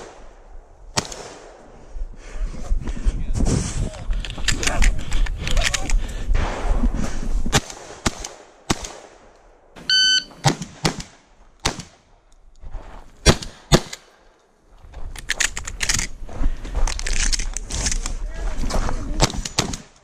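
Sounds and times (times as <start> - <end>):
shotgun blasts: 0.9 - 1.6, 7.5 - 9.3, 10.3 - 12.0, 13.2 - 14.0
shot timer beep: 9.9 - 10.4.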